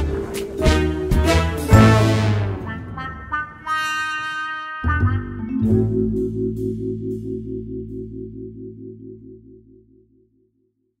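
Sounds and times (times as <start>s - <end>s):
low droning theme music: 0.0s - 10.6s.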